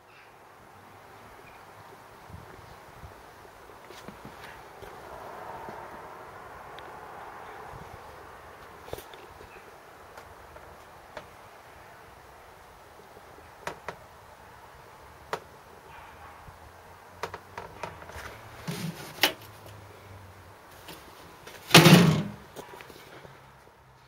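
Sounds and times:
loud thump: 0:21.7 - 0:22.4.

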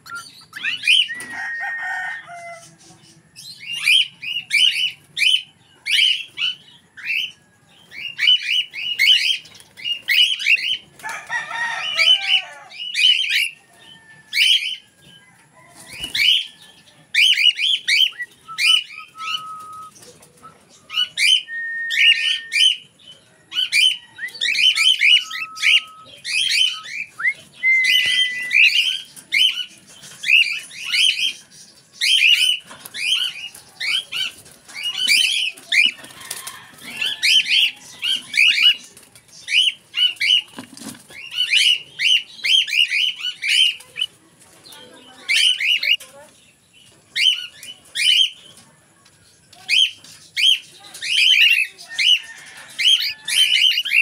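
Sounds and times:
cockatiel chirping and whistling: 0:00.0 - 0:01.2, 0:17.2 - 0:19.9.

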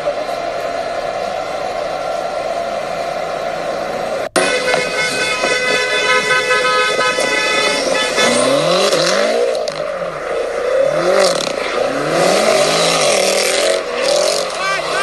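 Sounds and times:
car engine revving: 0:02.6 - 0:15.0
car horn: 0:04.3 - 0:09.8.

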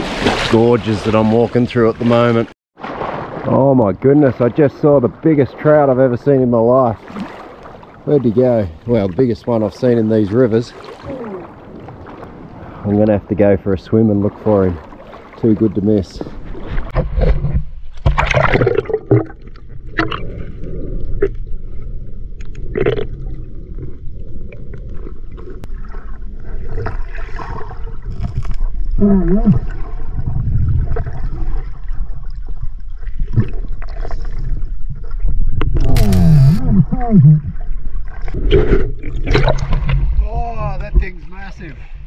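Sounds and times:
splashing: 0:00.0 - 0:05.7, 0:06.9 - 0:13.0, 0:14.2 - 0:21.4
muffled gurgling river water: 0:00.4 - 0:42.0.

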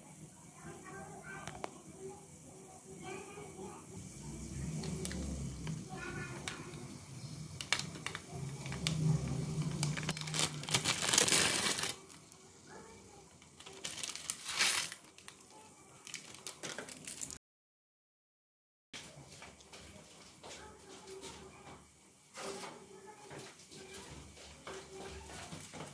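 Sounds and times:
plastic packet crinkling: 0:07.5 - 0:12.4, 0:13.4 - 0:17.4.

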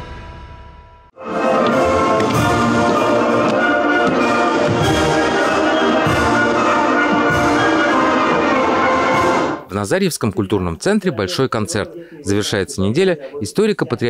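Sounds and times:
brass-led orchestral music: 0:01.2 - 0:09.7.

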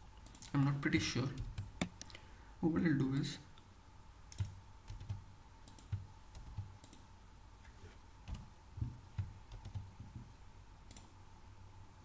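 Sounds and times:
computer keyboard typing: 0:01.3 - 0:02.1, 0:04.3 - 0:07.0, 0:08.2 - 0:08.5, 0:09.1 - 0:10.0.

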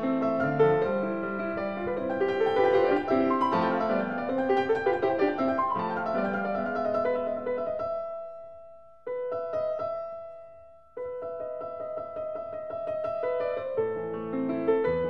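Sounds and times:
slow solo piano music: 0:00.0 - 0:15.0.

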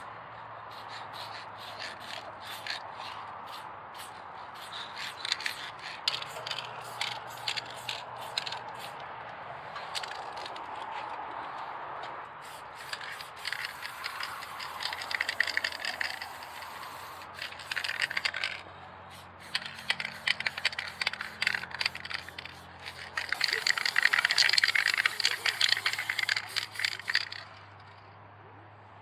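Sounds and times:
spray can ball rattling: 0:00.7 - 0:09.0, 0:09.8 - 0:10.8, 0:12.4 - 0:28.0
spray hiss: 0:12.4 - 0:18.2, 0:19.1 - 0:27.1.

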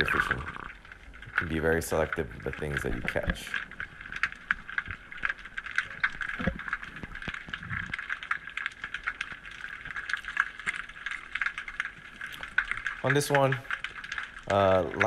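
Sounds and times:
muffled underwater hiss: 0:00.0 - 0:11.7
crackle of small clicks: 0:00.0 - 0:15.0.

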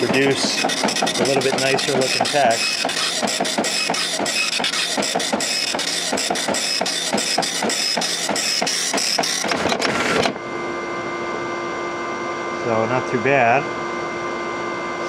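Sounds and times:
dot matrix printer printing: 0:00.0 - 0:10.4.

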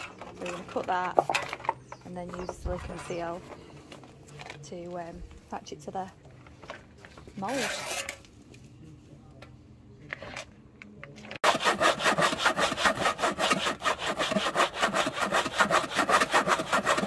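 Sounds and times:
hand saw cutting plastic: 0:11.4 - 0:17.0.

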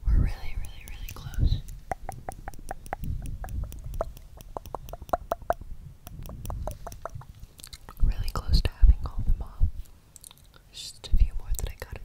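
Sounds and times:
tongue clicks: 0:00.3 - 0:08.6, 0:10.2 - 0:10.6
lip smacks: 0:00.5 - 0:08.4, 0:10.2 - 0:10.6.

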